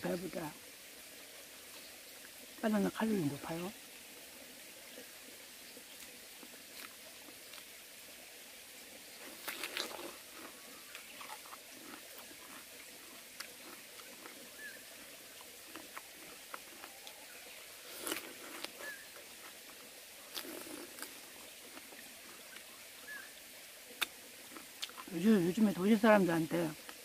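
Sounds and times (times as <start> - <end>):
faint steady hiss: 0.0 - 27.0
soft chewing clicks: 6.0 - 7.8, 9.2 - 22.8, 23.9 - 25.1
crisp crunching bites: 9.3 - 14.4, 15.7 - 17.2, 17.9 - 19.0, 20.3 - 22.4.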